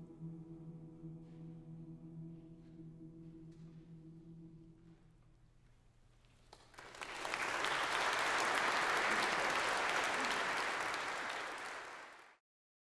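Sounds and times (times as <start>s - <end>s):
audience applauding: 6.5s - 12.4s.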